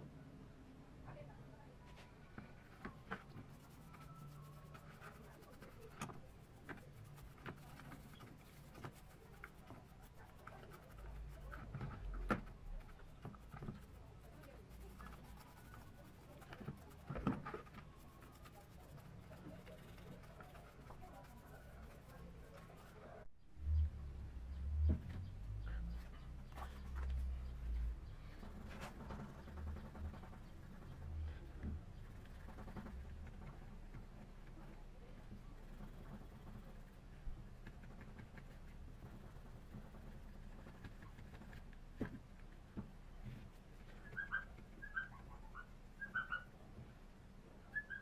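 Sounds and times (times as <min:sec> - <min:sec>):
brush scrubbing metal part: 0:02.6 - 0:22.9.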